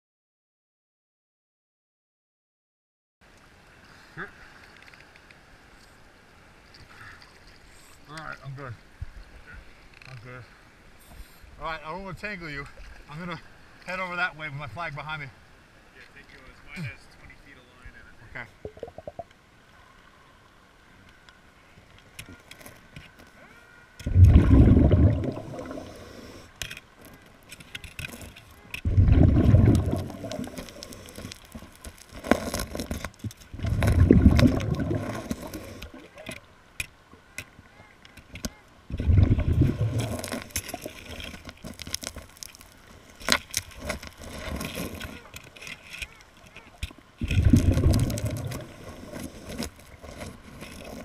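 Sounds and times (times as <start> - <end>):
underwater bubbling rushes: 18.6 - 19.3, 24.0 - 26.4, 28.8 - 31.4, 33.5 - 36.2, 38.9 - 41.1, 47.2 - 49.4
hand digging in sand and shell grit: 29.8 - 34.1, 39.8 - 45.6, 47.2 - 51.0.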